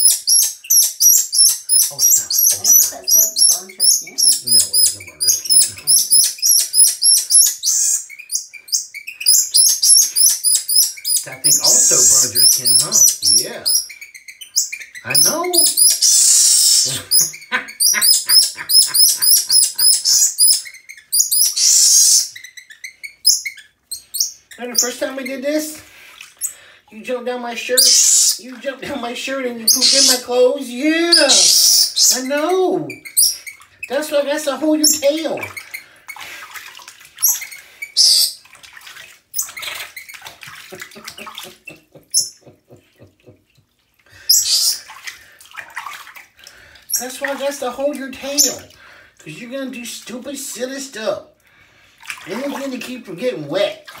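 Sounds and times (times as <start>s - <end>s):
water splashing in bathtub: 0.0s - 22.5s, 23.1s - 54.0s
monkey screeching: 0.0s - 23.6s, 27.8s - 28.4s, 29.7s - 30.2s, 31.1s - 32.3s, 37.2s - 38.4s, 44.3s - 44.8s
monkey chirping: 0.0s - 25.1s, 29.6s - 30.2s, 31.1s - 33.6s, 37.2s - 38.4s, 42.1s - 42.4s, 44.3s - 44.8s.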